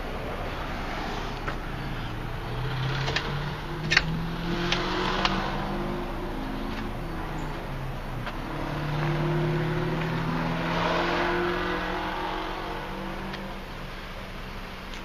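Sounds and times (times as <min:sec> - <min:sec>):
car engine humming: 0:00.0 - 0:15.0
road noise: 0:00.0 - 0:15.0.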